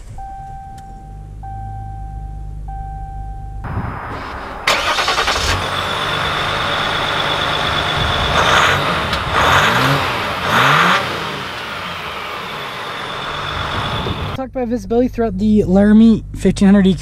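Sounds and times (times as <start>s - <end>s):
diesel engine running and revving: 3.6s - 14.4s.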